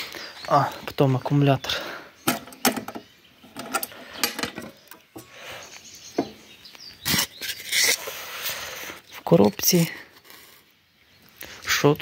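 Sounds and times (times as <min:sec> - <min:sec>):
metal latch and lid clicks and clanks: 0:02.3 - 0:05.3.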